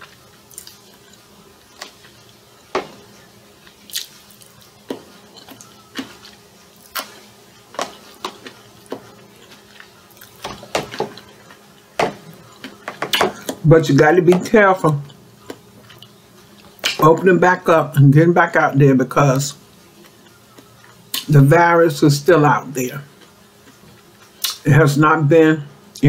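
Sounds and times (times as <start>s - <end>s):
fork clicks and crunches: 0.5s - 2.4s, 3.6s - 13.6s.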